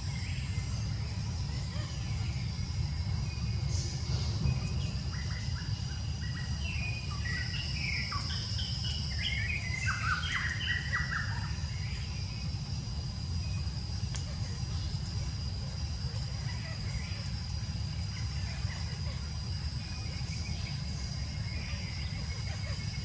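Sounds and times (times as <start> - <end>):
high insect drone: 0.0 - 23.0
low background rumble: 0.0 - 23.0.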